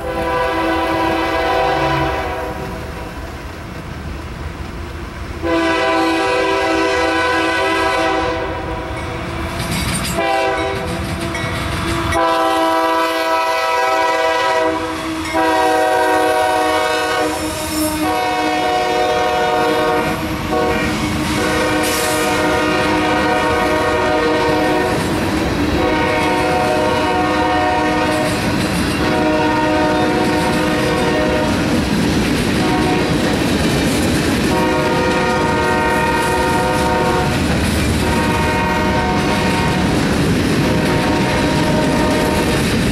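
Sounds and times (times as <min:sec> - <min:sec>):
train horn long blasts: 0:00.0 - 0:02.9, 0:05.4 - 0:09.0, 0:10.2 - 0:25.1, 0:25.8 - 0:28.4, 0:29.0 - 0:31.6, 0:32.6 - 0:33.2, 0:34.5 - 0:37.4, 0:38.0 - 0:40.0, 0:40.6 - 0:42.6
crossing warning bells ringing: 0:08.5 - 0:12.7, 0:14.0 - 0:31.7
freight cars rumbling and clacking: 0:09.0 - 0:12.2, 0:28.1 - 0:29.2, 0:30.0 - 0:35.7, 0:37.2 - 0:38.4, 0:39.0 - 0:42.9.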